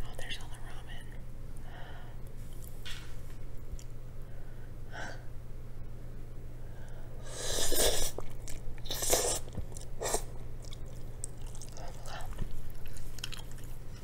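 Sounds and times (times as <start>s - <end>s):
person slurping noodles: 7.3s - 8.2s, 8.8s - 10.3s
person chewing: 7.6s - 14.0s.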